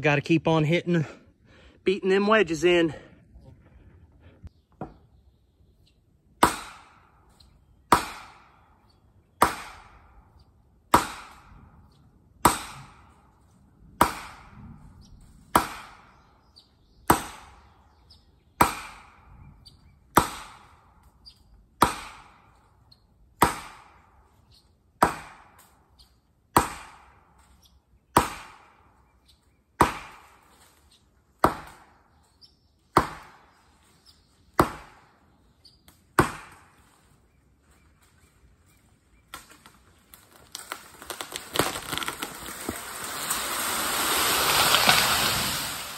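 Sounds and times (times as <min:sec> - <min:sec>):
hammer pounding felling wedges: 0:06.4 - 0:08.8, 0:09.4 - 0:10.2, 0:10.9 - 0:11.6, 0:12.4 - 0:13.4, 0:14.0 - 0:14.8, 0:15.5 - 0:16.3, 0:17.0 - 0:17.9, 0:18.6 - 0:19.4, 0:20.1 - 0:21.1, 0:21.8 - 0:22.6, 0:23.4 - 0:24.2, 0:25.0 - 0:25.8, 0:26.5 - 0:27.5, 0:28.1 - 0:29.0, 0:29.8 - 0:30.8, 0:31.4 - 0:32.2, 0:32.9 - 0:33.6, 0:34.5 - 0:35.2, 0:36.1 - 0:37.0, 0:39.3 - 0:45.9.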